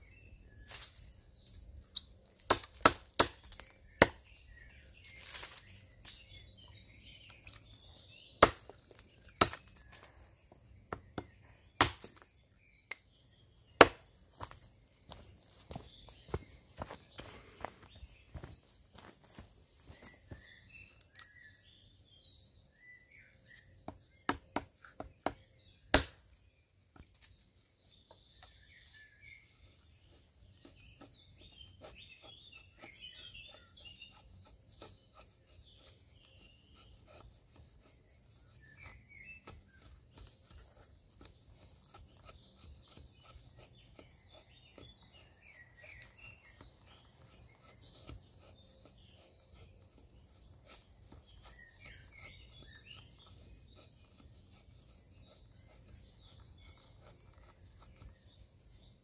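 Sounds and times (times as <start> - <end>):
insect chirring: 0.0 - 59.0
blade scraping log: 0.6 - 12.4, 13.8 - 22.2, 23.1 - 59.0
hatchet knocking dry wood: 2.4 - 4.4, 7.3 - 10.1, 10.8 - 12.3, 13.8 - 14.6, 23.5 - 27.4, 29.6 - 58.2.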